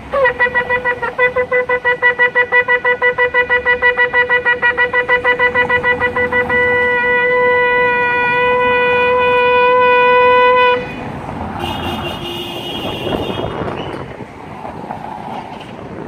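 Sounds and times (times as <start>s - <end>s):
street traffic noise: 0.0s - 16.0s
shofar blown: 0.1s - 11.0s.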